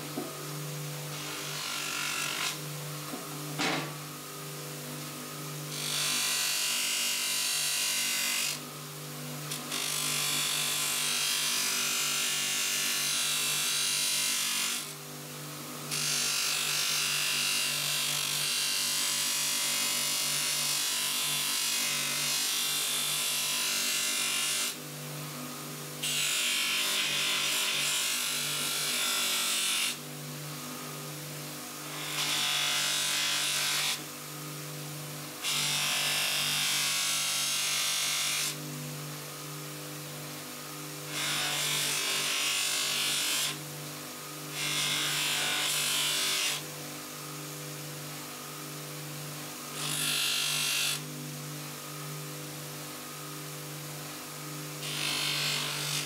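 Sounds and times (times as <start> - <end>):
bench polisher motor hum: 0.0 - 56.0.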